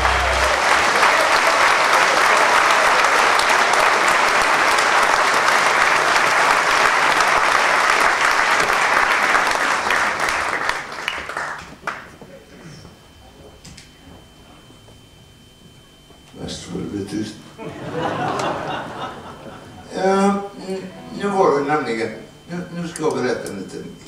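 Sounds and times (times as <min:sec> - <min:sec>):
audience applauding: 0:00.0 - 0:12.1.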